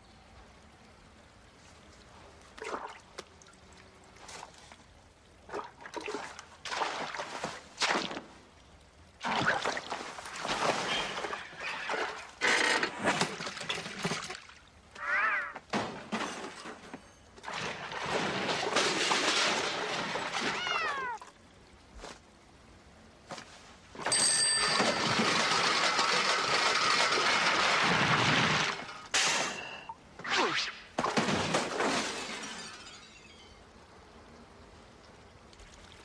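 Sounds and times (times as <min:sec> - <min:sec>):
pitched cry: 0:15.0 - 0:15.6.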